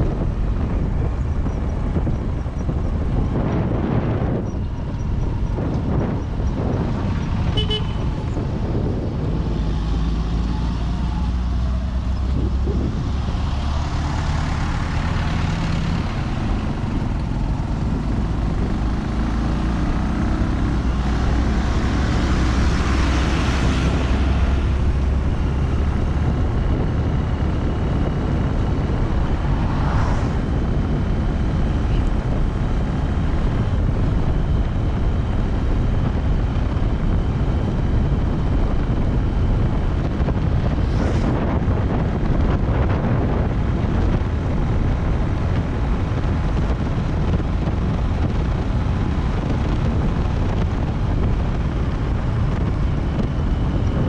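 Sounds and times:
vehicle engine and road noise: 0:00.0 - 0:54.0
vehicles passing: 0:00.0 - 0:54.0
horn toot: 0:07.5 - 0:08.2.

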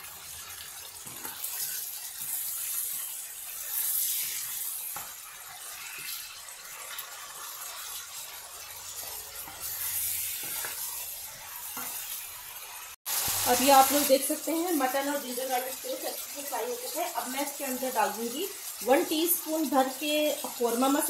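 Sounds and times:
meat sizzling in oil: 0:00.0 - 0:21.0
spatula scraping pan: 0:01.0 - 0:12.7.

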